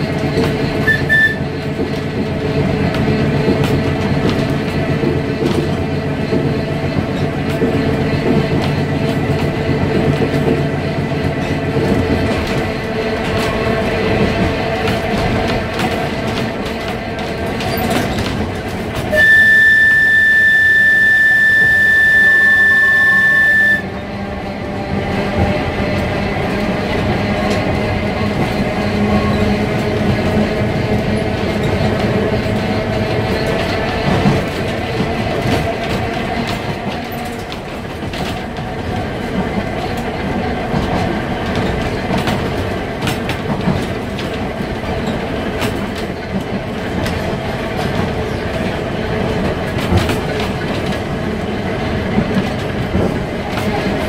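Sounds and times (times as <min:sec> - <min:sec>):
wheels clicking over rail joints: 0:00.0 - 0:19.8, 0:24.2 - 0:54.0
tram rumble and hum: 0:00.0 - 0:54.0
loud high-pitched tone: 0:19.1 - 0:23.9.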